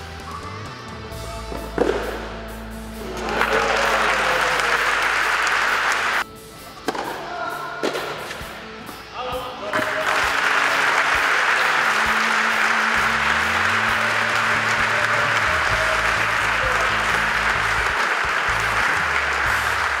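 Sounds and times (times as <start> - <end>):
background music: 0.0 - 20.0
crowd applauding: 3.0 - 6.2, 9.7 - 20.0.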